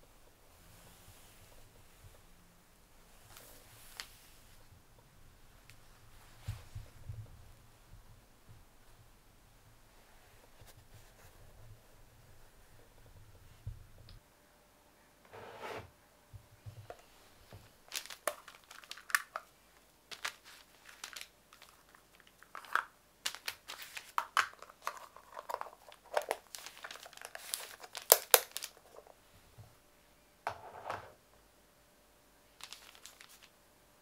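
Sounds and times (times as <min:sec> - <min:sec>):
paper crinkling and rustling: 0:17.8 - 0:19.5, 0:20.1 - 0:29.2, 0:32.6 - 0:33.5.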